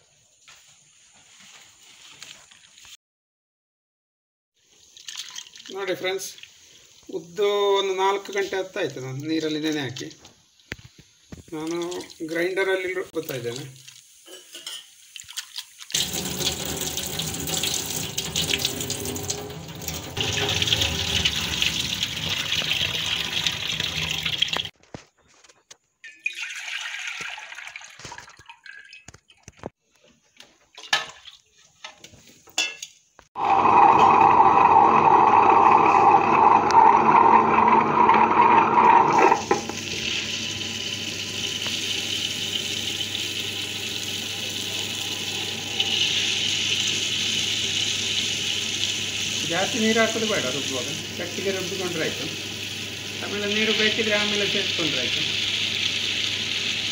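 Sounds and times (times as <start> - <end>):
running water: 4.6 - 24.8, 33.4 - 56.9
water sloshing in a steel bowl: 4.7 - 6.8, 13.4 - 24.7, 26.0 - 29.7, 30.6 - 31.9
splashes and clinks: 4.8 - 6.6, 26.0 - 29.7
wet grinder rollers grinding: 16.0 - 24.7, 33.4 - 41.8.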